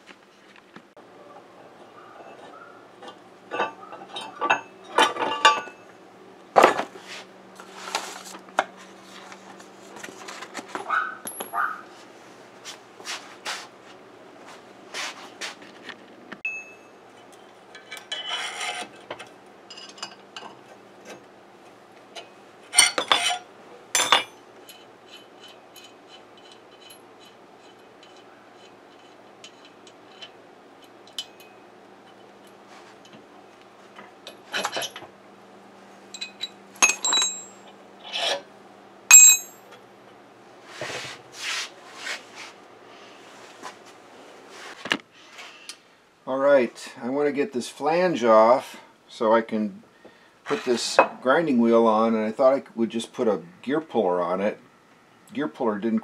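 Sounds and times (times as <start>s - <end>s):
metal tools clinking and scraping: 1.8s - 6.0s, 6.6s - 11.8s, 16.4s - 21.3s, 22.1s - 33.2s, 33.9s - 35.1s, 36.1s - 38.5s, 39.1s - 39.8s.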